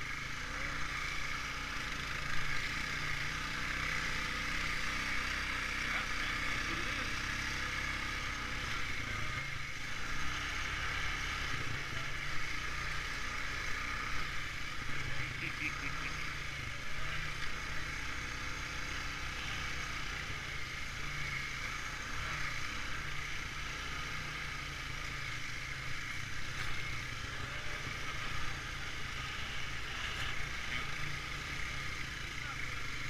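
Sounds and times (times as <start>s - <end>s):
atv engine running: 0.0s - 33.0s.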